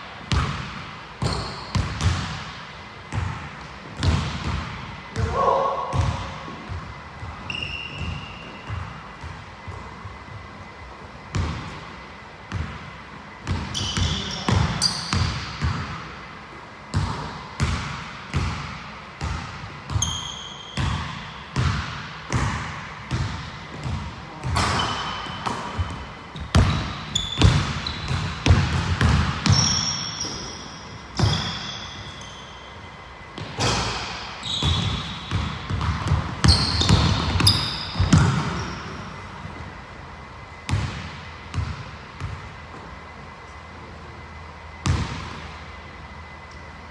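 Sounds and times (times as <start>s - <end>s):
sneakers squeaking: 0.1s - 46.9s
basketball bouncing on hardwood: 25.4s - 30.4s, 34.6s - 38.6s.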